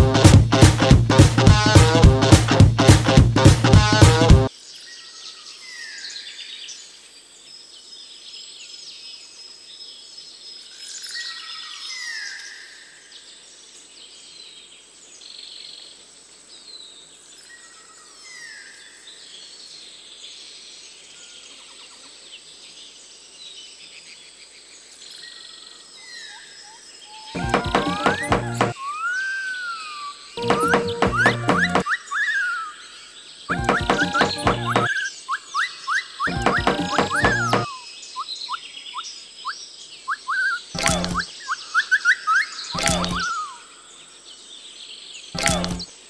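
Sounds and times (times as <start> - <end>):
birds chirping and calling: 33.5 - 38.6, 40.1 - 43.7.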